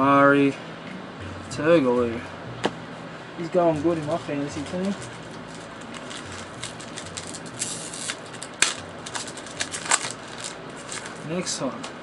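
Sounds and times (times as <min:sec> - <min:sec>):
cards and wrapper rustling: 0:03.8 - 0:11.5
sharp wrapper crackles: 0:04.0 - 0:11.5
steady hiss: 0:06.1 - 0:11.8.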